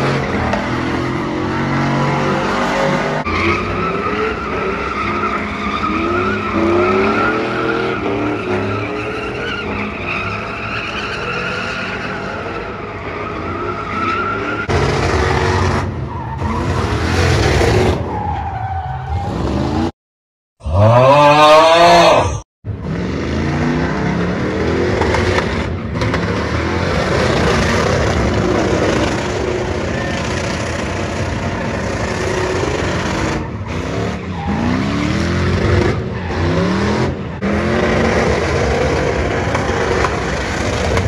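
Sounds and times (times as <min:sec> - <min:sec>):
tires squealing: 0:00.0 - 0:19.9, 0:22.8 - 0:41.0.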